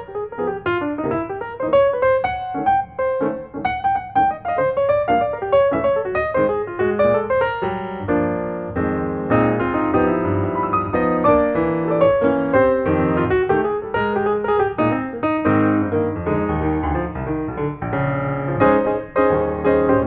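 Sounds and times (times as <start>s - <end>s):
piano music: 0.0s - 20.0s.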